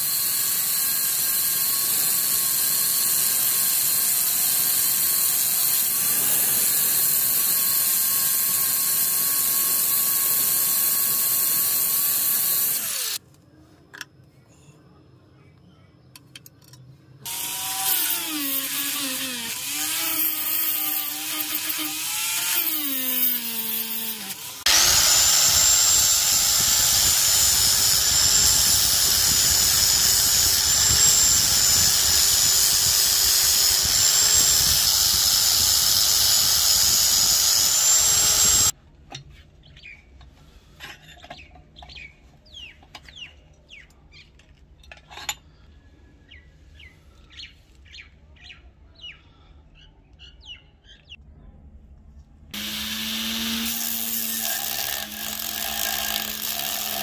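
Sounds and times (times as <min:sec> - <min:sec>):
angle grinder grinding steel: 0:00.0 - 0:13.2, 0:17.2 - 0:38.8, 0:52.6 - 0:57.0
rotary tool drilling whine: 0:00.0 - 0:13.2, 0:17.3 - 0:38.7, 0:52.6 - 0:57.0.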